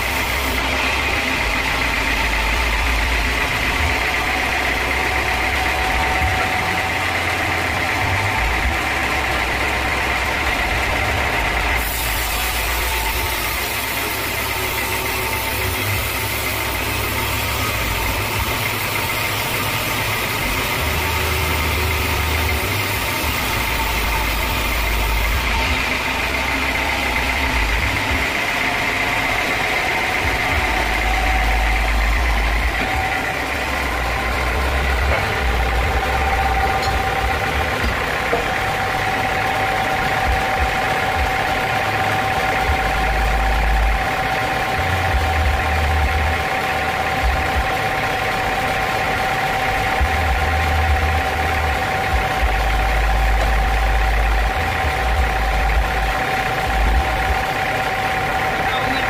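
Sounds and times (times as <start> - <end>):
band sawmill drone and whine: 0.0 - 59.0
saw blade cutting log: 11.3 - 40.6.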